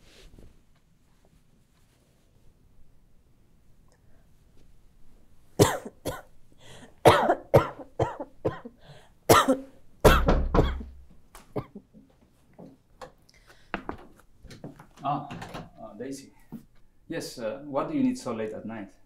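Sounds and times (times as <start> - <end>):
woman coughing: 5.6 - 6.3, 7.0 - 11.0, 11.6 - 11.9
knocking on a door: 10.1 - 10.8.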